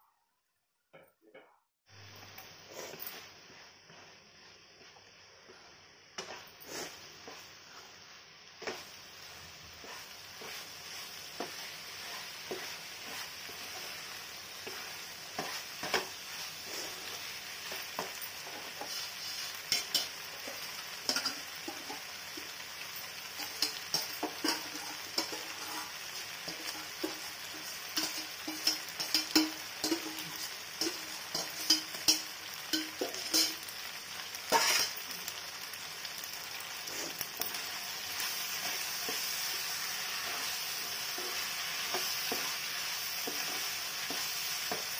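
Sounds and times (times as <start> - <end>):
food sizzling in a wok: 1.9 - 44.9
spatula stirring and scraping: 2.6 - 22.6, 23.2 - 33.7, 34.5 - 35.0, 36.8 - 44.9.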